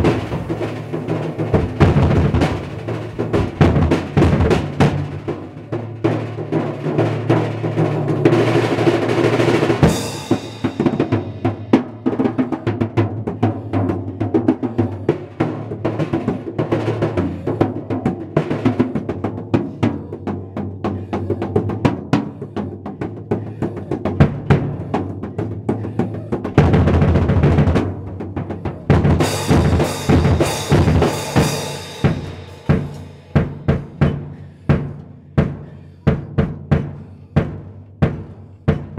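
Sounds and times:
drum kit played with hands: 0.0s - 38.9s
cymbals washing: 28.6s - 34.4s.

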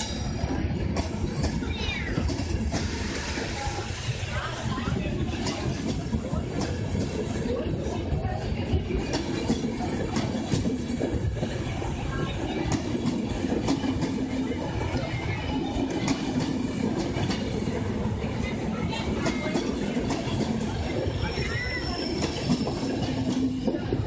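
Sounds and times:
train coaches rumbling past: 0.0s - 24.0s
wheels clicking over rail joints: 5.0s - 24.0s.

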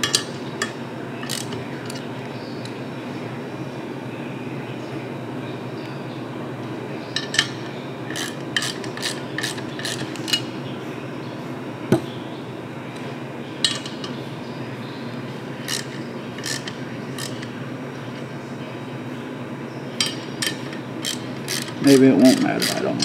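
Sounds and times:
ratchet wrench clicking: 0.0s - 2.0s, 8.1s - 10.4s, 15.7s - 17.5s, 20.0s - 22.8s
sharp metal click: 20.0s - 22.8s.

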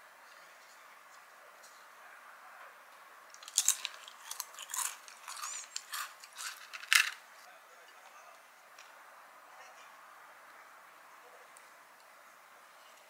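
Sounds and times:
fried batter crunching and crackling: 3.4s - 7.2s.

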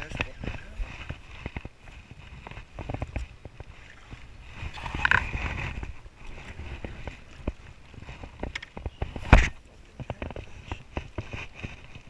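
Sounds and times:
wind buffeting microphone: 0.0s - 12.0s
fishing rod and reel clicks: 3.6s - 5.5s.

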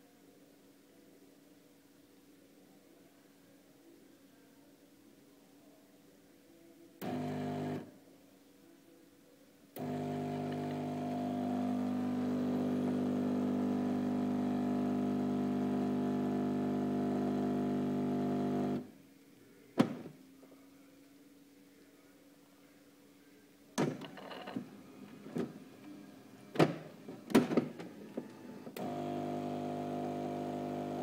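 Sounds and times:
coffee machine humming: 7.0s - 7.8s, 9.8s - 18.9s, 27.9s - 31.0s.

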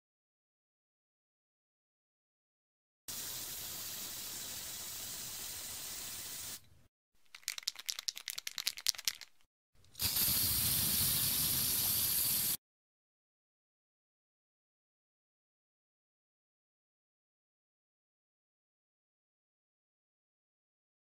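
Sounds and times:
spray can rattling when shaken: 3.1s - 6.6s, 7.2s - 12.6s
spray can hissing: 3.1s - 6.7s, 7.3s - 12.6s.

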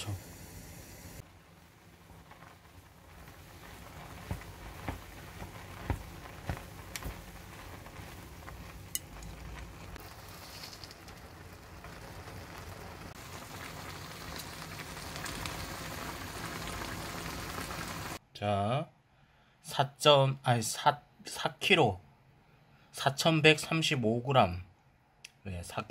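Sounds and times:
pot of noodles bubbling: 0.3s - 18.2s
chopsticks tapping a pot: 4.2s - 7.3s.

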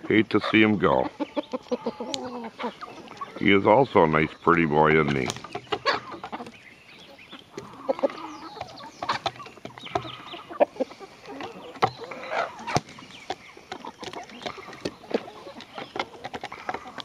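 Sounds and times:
chickens clucking: 0.0s - 17.0s
beak tapping on wood: 8.5s - 10.3s.

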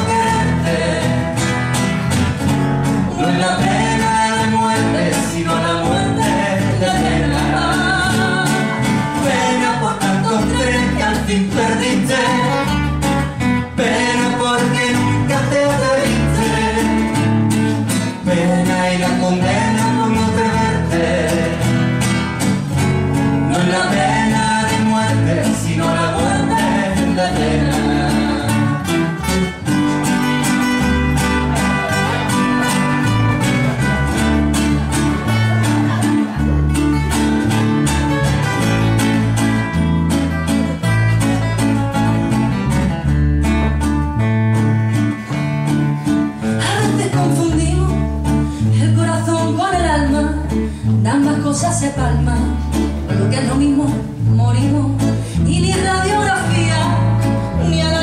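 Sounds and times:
woman singing: 0.0s - 1.3s, 3.1s - 12.7s, 18.2s - 21.6s, 23.5s - 28.9s, 46.6s - 58.0s
acoustic guitars playing: 0.0s - 58.0s.

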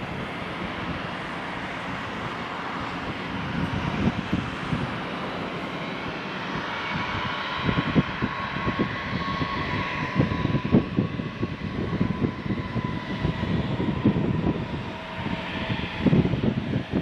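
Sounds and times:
jet engines whining: 0.0s - 17.0s
wind buffeting microphone: 0.0s - 17.0s.

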